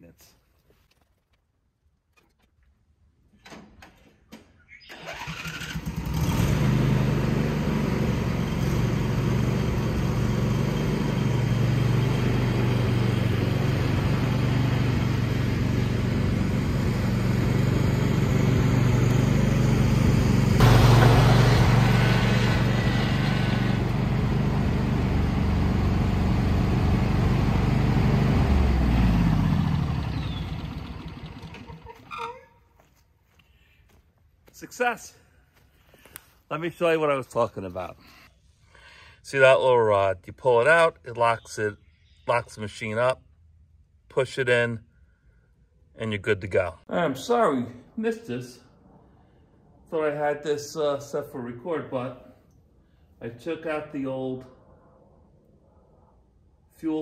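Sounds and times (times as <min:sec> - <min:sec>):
ride-on mower engine running: 0:04.9 - 0:32.1.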